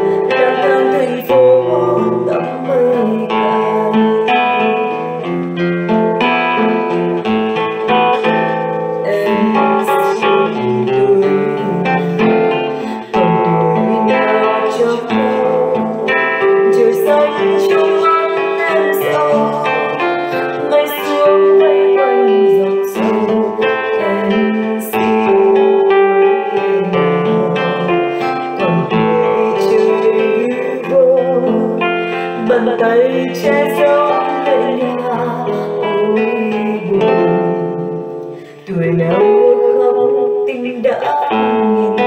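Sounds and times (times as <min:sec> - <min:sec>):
plucked acoustic guitar: 0:00.0 - 0:42.0.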